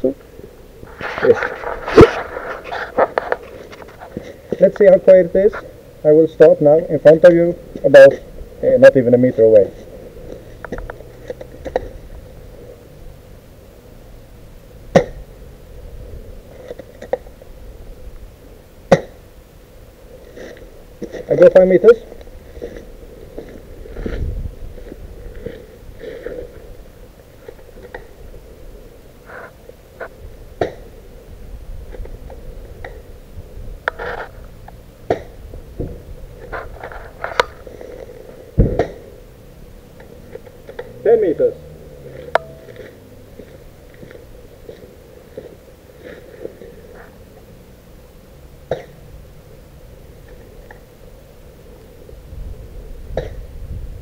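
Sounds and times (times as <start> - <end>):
wind rumbling on microphone: 0.7 - 4.5, 15.1 - 18.5, 22.0 - 40.3, 51.6 - 54.0.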